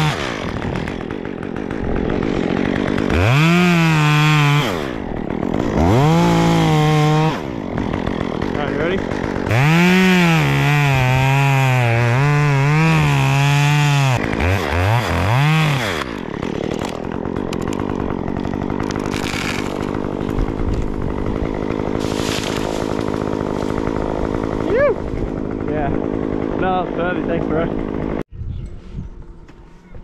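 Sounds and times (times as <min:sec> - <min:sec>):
chainsaw cutting wood: 0:00.0 - 0:28.3.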